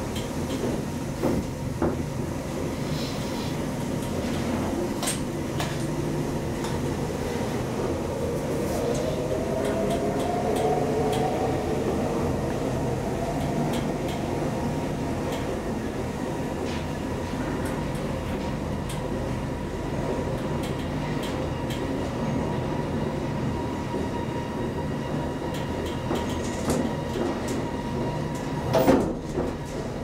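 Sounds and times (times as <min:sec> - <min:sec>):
elevator running hum: 0:00.0 - 0:30.0.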